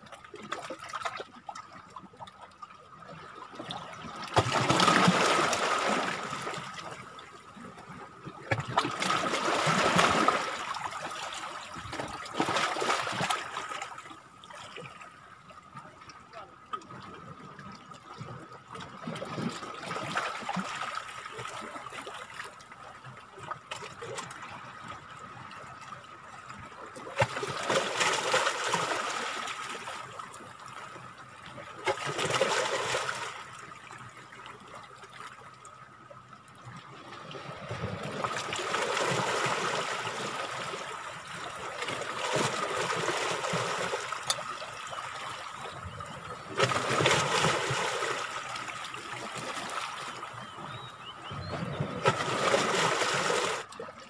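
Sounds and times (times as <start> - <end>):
sea water washing among rocks: 4.0 - 13.8, 27.0 - 30.0, 31.8 - 33.5, 37.4 - 45.0, 46.4 - 50.1, 51.6 - 53.8.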